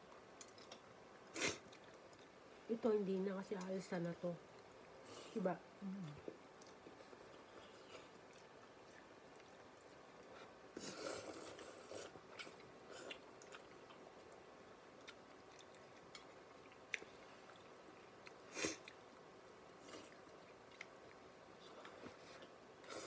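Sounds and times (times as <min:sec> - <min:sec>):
person chewing and slurping noodles: 0:06.1 - 0:14.4, 0:15.0 - 0:23.0.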